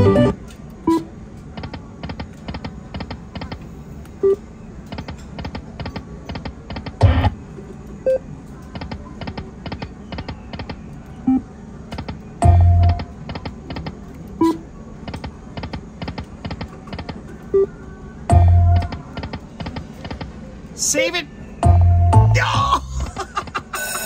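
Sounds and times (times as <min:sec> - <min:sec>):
slot machine reels clicking: 0:00.0 - 0:00.4
short beeping tones: 0:12.4 - 0:13.1, 0:14.4 - 0:14.6.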